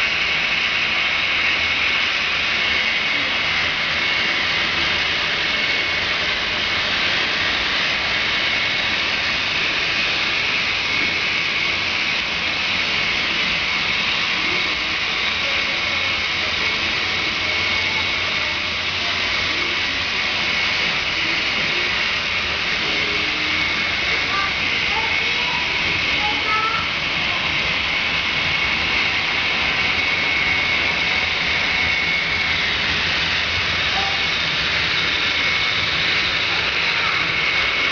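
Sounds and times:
model train wheels whirring on rail: 0.0s - 37.9s.

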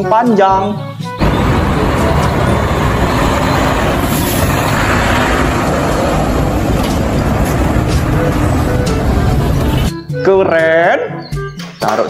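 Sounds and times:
traffic: 1.0s - 9.9s
truck driving past: 1.2s - 9.9s.

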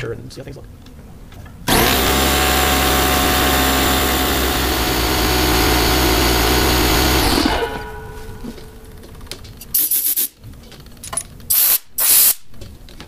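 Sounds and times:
air compressor running with whine: 1.7s - 9.9s.

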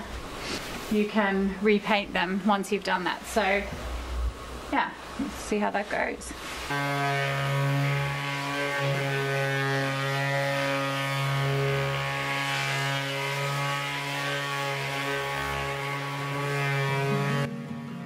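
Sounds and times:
orbital sander humming: 6.7s - 17.5s.

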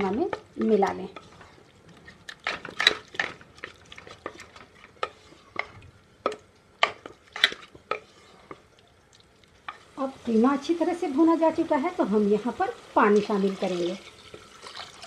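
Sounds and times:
spatula scraping a cooking pan: 0.6s - 5.8s, 6.8s - 8.7s.

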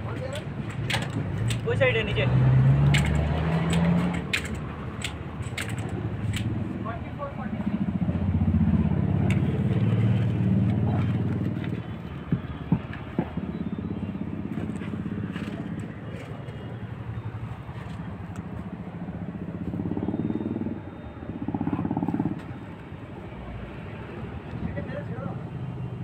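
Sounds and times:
sharp clicks: 0.3s - 1.7s, 2.8s - 6.6s
vehicle engine running: 1.1s - 26.0s.

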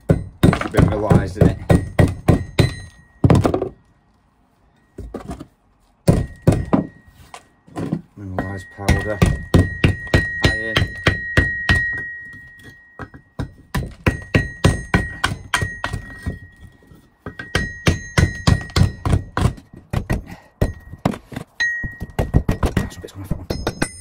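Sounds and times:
hammer bashing iron: 0.0s - 3.8s, 6.0s - 7.0s, 7.8s - 24.0s
metallic ring: 2.4s - 3.4s, 8.3s - 19.8s, 20.6s - 22.4s, 23.4s - 24.0s.

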